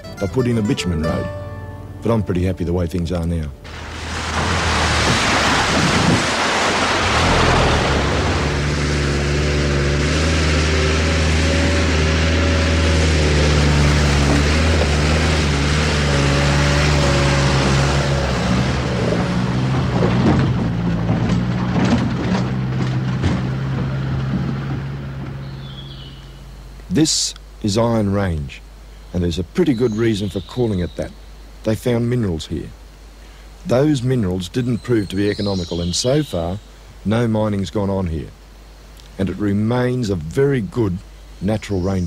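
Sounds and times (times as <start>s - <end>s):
tyres on gravel: 3.1s - 27.0s
diesel engine running: 3.5s - 26.7s
knocks and rattles: 19.0s - 25.4s.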